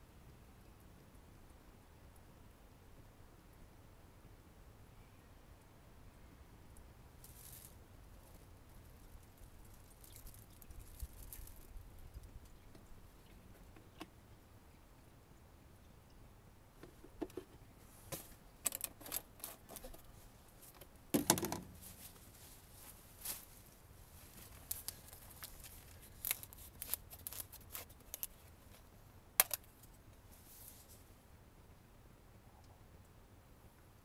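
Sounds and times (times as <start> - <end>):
plastic bottle clicks and knocks: 21.2 - 21.7.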